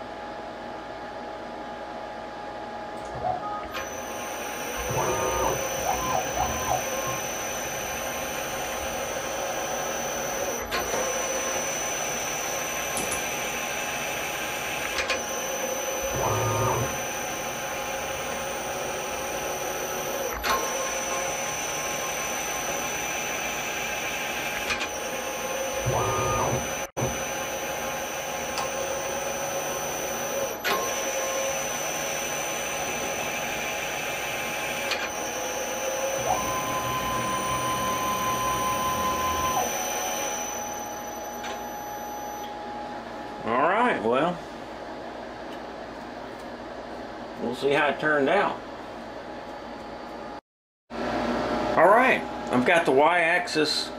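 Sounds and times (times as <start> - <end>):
stepper motor pitch rise and fall: 3.1 - 13.7, 15.2 - 27.9, 28.6 - 40.9
milling machine spindle whine: 3.1 - 42.6.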